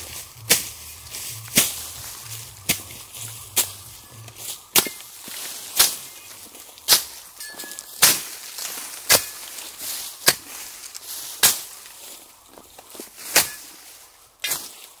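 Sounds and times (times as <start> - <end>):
hand tool chopping into soil: 0.4 - 0.8, 1.5 - 1.8, 4.7 - 6.1, 6.8 - 9.6, 10.2 - 11.8, 13.3 - 13.8, 14.4 - 14.8.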